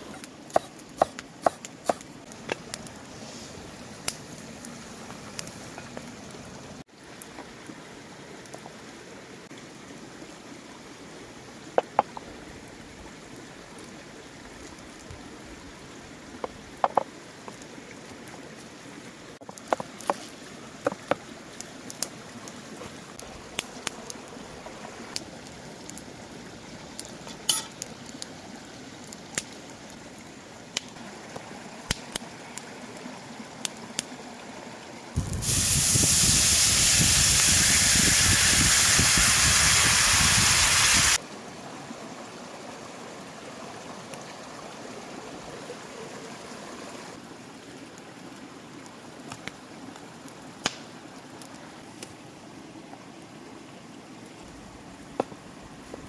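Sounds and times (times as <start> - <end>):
liquid sizzling in a hot skillet: 35.2 - 41.2.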